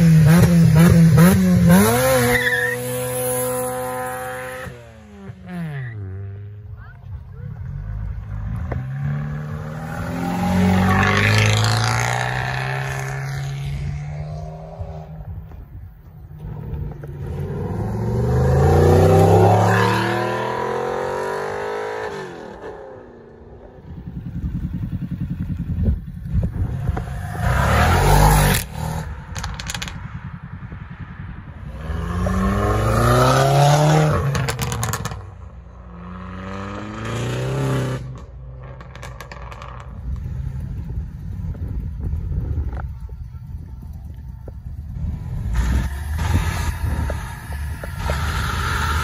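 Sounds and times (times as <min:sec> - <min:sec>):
car engines revving: 0:00.0 - 0:49.0
sharp cracks: 0:29.3 - 0:30.0.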